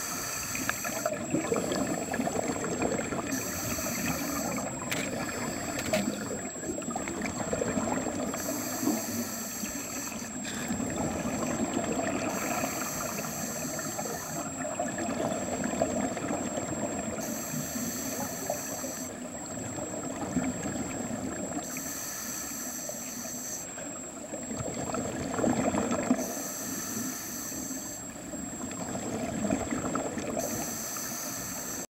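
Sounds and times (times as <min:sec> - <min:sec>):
diver breathing through regulator: 0:00.0 - 0:06.4, 0:08.2 - 0:11.6, 0:12.2 - 0:14.6, 0:17.2 - 0:19.2, 0:21.6 - 0:23.8, 0:26.2 - 0:28.1, 0:30.4 - 0:31.9
underwater bubbling: 0:00.0 - 0:31.8.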